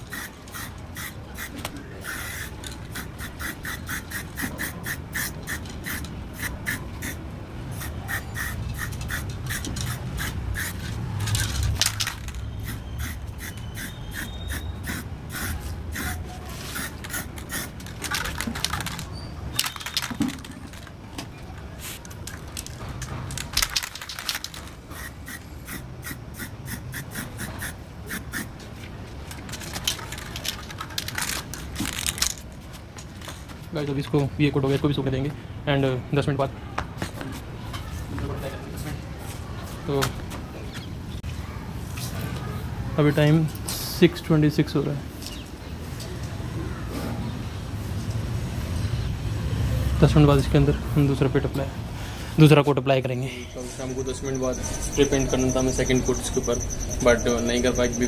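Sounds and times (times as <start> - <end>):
spray paint can hissing: 0.0 - 20.5, 23.3 - 28.5.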